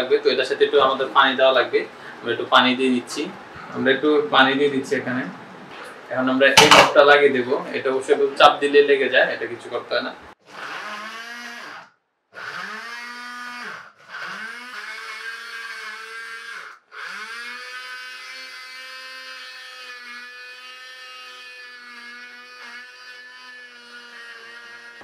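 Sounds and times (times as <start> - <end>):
blender motor chopping: 10.4 - 25.0.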